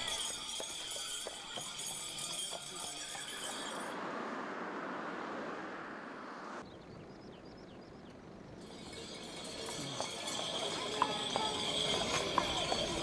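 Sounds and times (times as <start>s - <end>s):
steady rushing noise: 3.4s - 6.7s.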